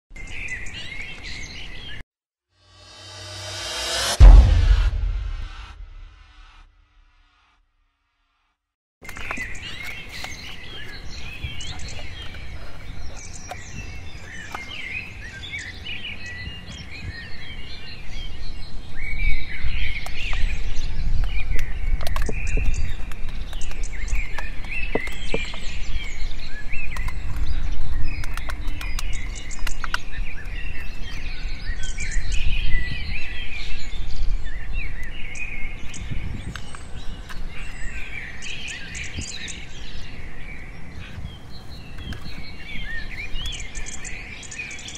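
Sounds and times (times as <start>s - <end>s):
low rumble: 2.7s - 6.6s
small birds chirping: 9.1s - 44.9s.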